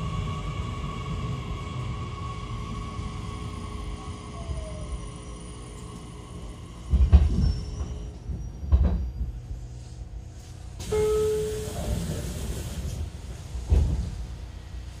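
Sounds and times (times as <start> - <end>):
train low rumble: 0.0 - 15.0
air hiss: 10.8 - 13.7.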